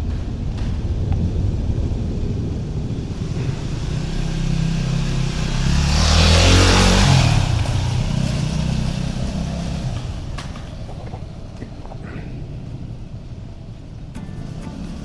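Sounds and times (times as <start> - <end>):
motorcycle passing by: 3.1 - 10.4.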